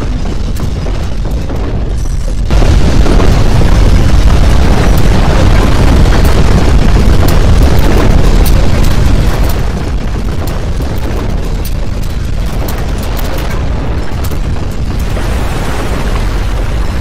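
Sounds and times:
crackles and rattles: 0.0 - 17.0
deep earthquake rumble: 0.0 - 17.0.

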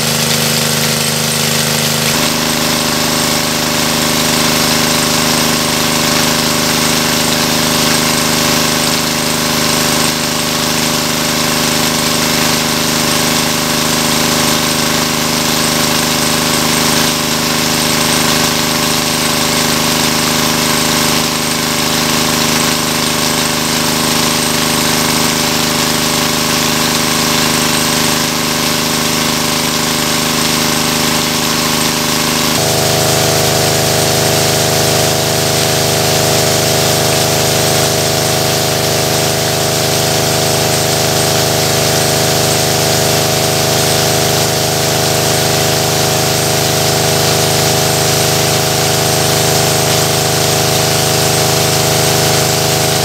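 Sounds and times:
engine-driven water pump running: 0.0 - 53.0
water gushing from hose: 0.0 - 53.0.

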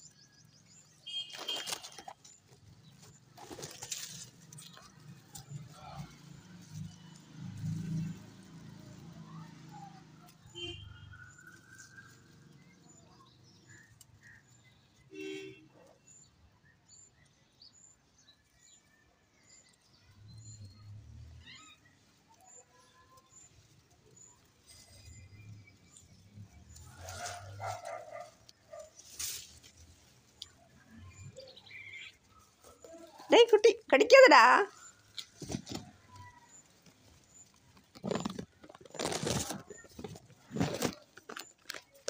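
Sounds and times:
leaves rustling: 0.6 - 12.7, 21.4 - 42.0
bird calls: 20.4 - 42.0.

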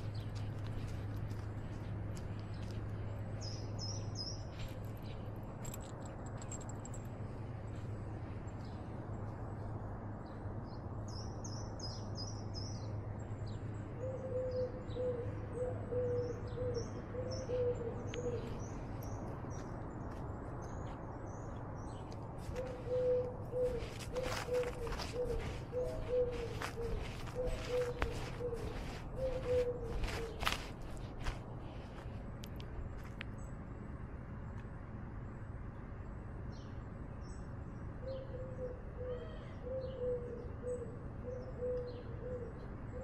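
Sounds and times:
steady low hum: 0.0 - 43.0
lower bird call: 22.5 - 30.7.

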